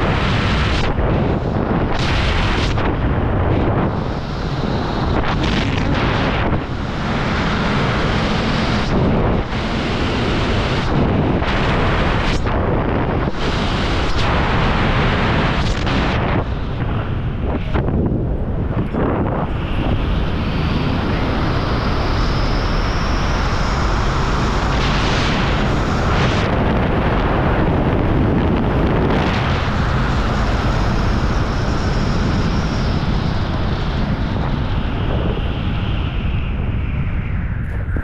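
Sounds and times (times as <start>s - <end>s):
wind buffeting microphone: 0.0s - 38.0s.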